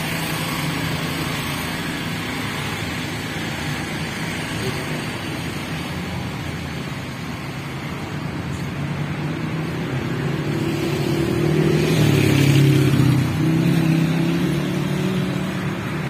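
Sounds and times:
street traffic: 0.0 - 16.0
motorcycle passing close: 9.0 - 16.0.

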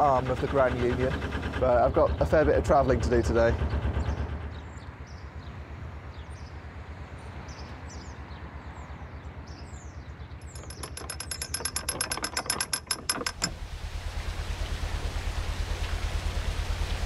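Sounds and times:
birds chirping: 0.0 - 13.3
ratchet clicking: 10.4 - 13.6.

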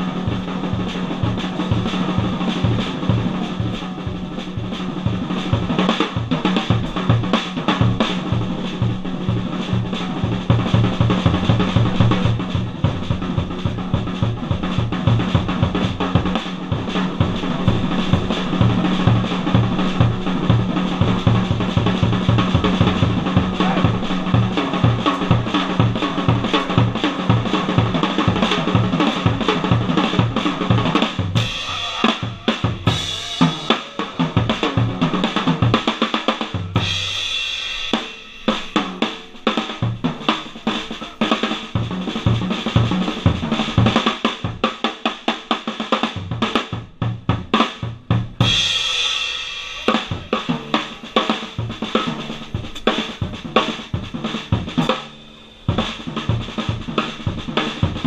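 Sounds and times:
bass drum pulse: 0.0 - 35.9
cymbal crashes: 0.0 - 45.5, 48.4 - 58.0
snare and tom figures: 0.0 - 48.9, 49.7 - 58.0.

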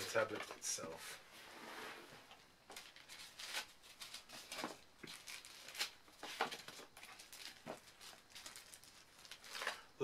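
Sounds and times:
plastic bag crinkling: 2.7 - 9.9.

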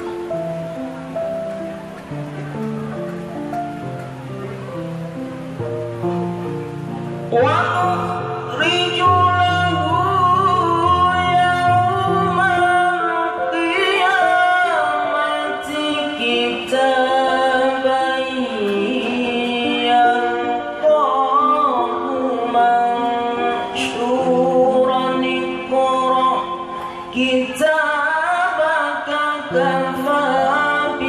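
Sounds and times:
person reciting melodically: 7.3 - 31.0.

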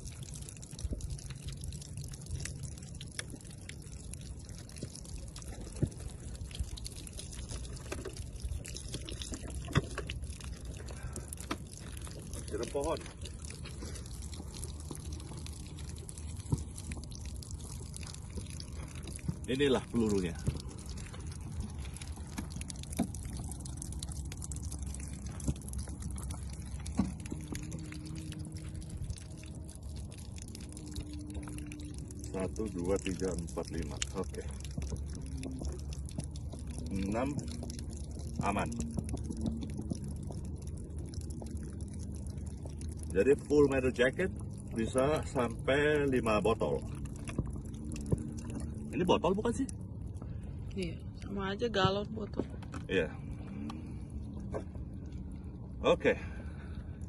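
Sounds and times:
water pouring and splashing: 0.0 - 57.0.

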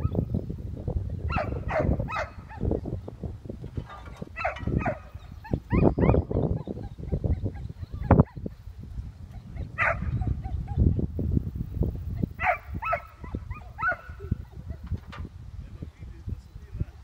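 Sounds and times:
dog yelping whines: 3.9 - 8.5, 12.2 - 14.8.

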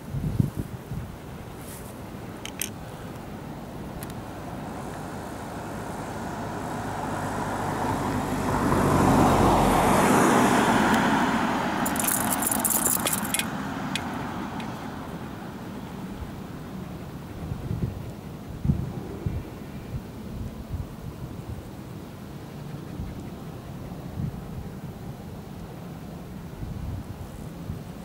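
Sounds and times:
vehicle passing by: 4.2 - 20.0.

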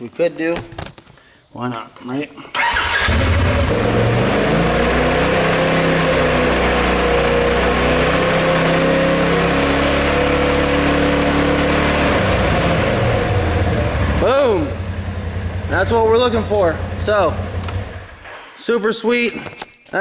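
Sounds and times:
engine idling: 12.6 - 18.2.

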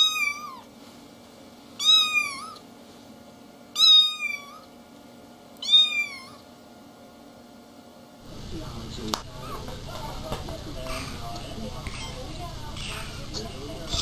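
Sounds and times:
kitten mewing: 1.8 - 2.6, 3.8 - 4.7, 5.6 - 6.4.

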